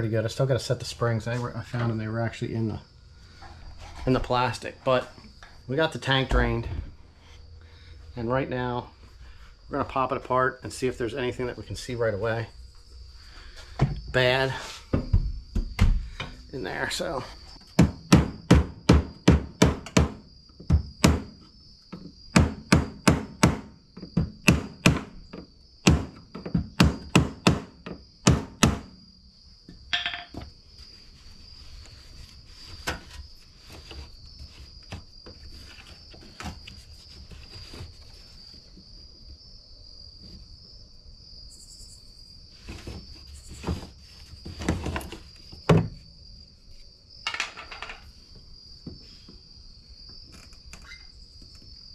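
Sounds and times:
crickets chirping: 0:00.0 - 0:51.9
sharp knocks on metal parts: 0:17.8 - 0:21.4, 0:22.3 - 0:25.1, 0:25.8 - 0:29.0, 0:29.9 - 0:30.5, 0:47.2 - 0:48.0
brief squeak: 0:50.8 - 0:51.2.

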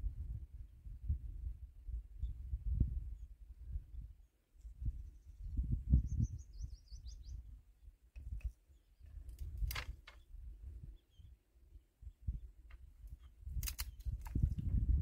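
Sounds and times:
sharp clicks: 0:13.5 - 0:14.6.

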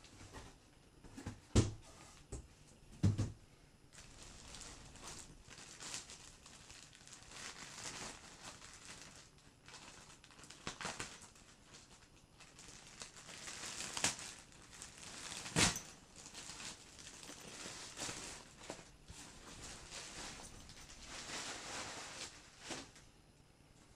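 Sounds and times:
plastic bag crinkling and rustling: 0:03.9 - 0:23.1.

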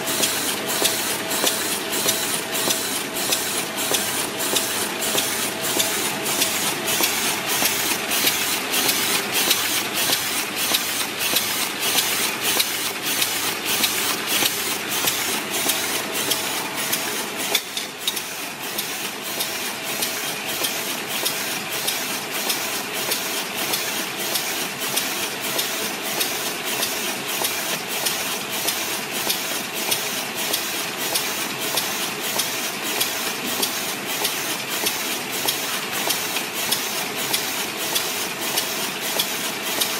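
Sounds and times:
bag making machine clattering: 0:00.0 - 0:39.9.

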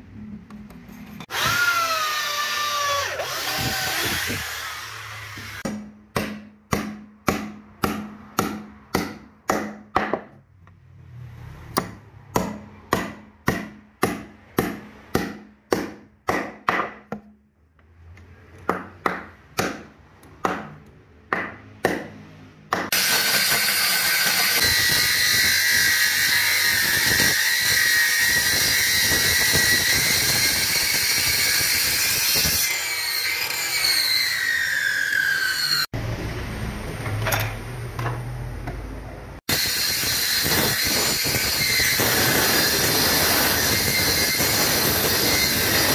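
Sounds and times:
electric circular saw running: 0:01.2 - 0:05.6, 0:22.9 - 0:35.9, 0:39.5 - 0:45.9.

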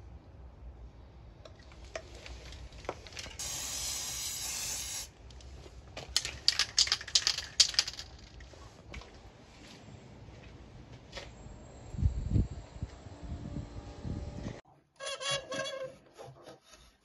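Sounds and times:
spray paint can hissing: 0:03.4 - 0:05.1, 0:06.2 - 0:08.0.

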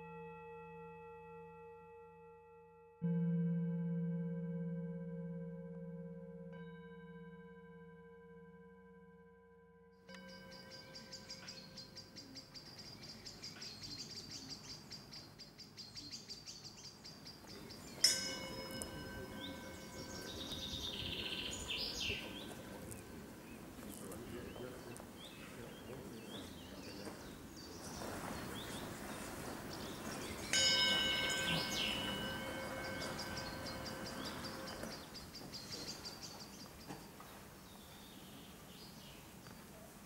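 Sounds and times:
meditation bell ringing: 0:00.0 - 0:12.6, 0:17.6 - 0:24.9, 0:28.1 - 0:35.8
birds chirping: 0:10.1 - 0:40.0.

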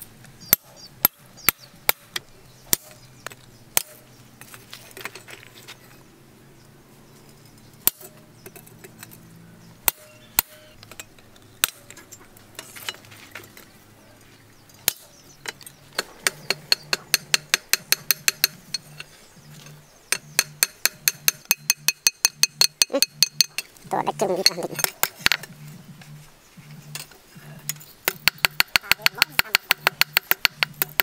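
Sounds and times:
hammer striking steel on anvil: 0:09.9 - 0:10.8, 0:16.0 - 0:19.0, 0:20.1 - 0:23.7.

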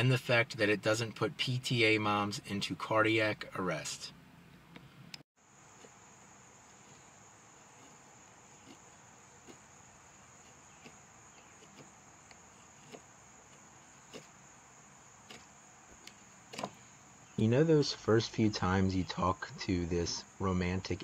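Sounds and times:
crickets chirring: 0:05.4 - 0:21.0
knife shaving wood: 0:05.5 - 0:17.1.

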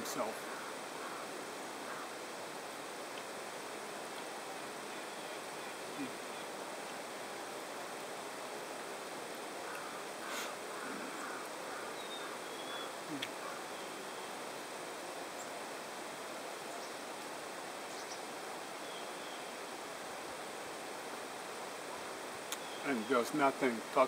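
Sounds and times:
outdoor background hiss: 0:00.0 - 0:24.0
faint bird chirps: 0:00.2 - 0:02.2, 0:04.9 - 0:06.6, 0:09.6 - 0:14.5, 0:17.8 - 0:19.6, 0:22.6 - 0:23.4.

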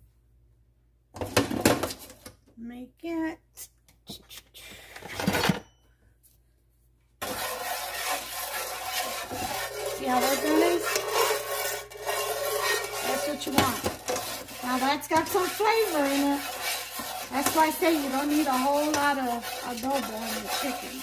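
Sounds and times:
spatula scraping frying pan: 0:07.2 - 0:21.0.

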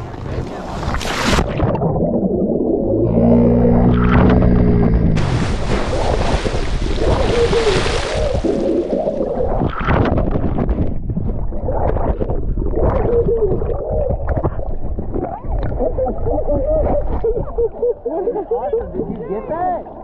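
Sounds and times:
underwater rushing and bubbling: 0:00.0 - 0:20.0
person splashing into water: 0:05.2 - 0:09.5
water sloshing: 0:05.2 - 0:10.0.

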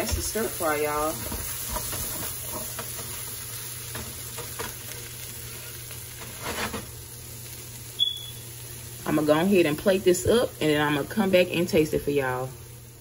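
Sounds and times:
spatula scraping pan: 0:00.0 - 0:07.0
noodles sizzling in a skillet: 0:00.0 - 0:13.0.

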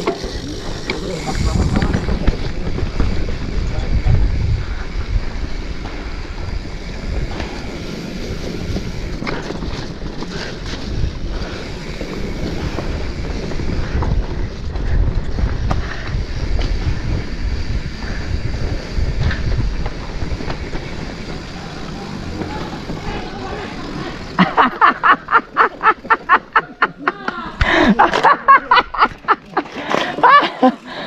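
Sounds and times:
clicks and knocks from bike: 0:00.0 - 0:03.6, 0:18.1 - 0:23.3
wind buffeting microphone: 0:00.0 - 0:26.9
bike tyres rolling over rocks: 0:00.0 - 0:30.8.

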